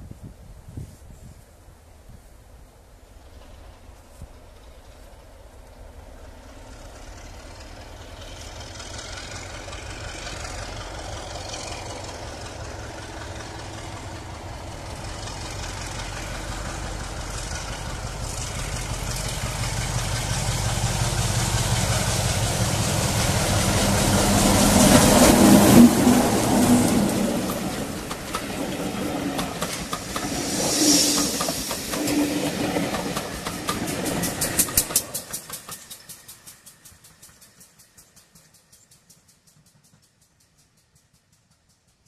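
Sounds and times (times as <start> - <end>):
diesel locomotive passing: 2.3 - 42.0.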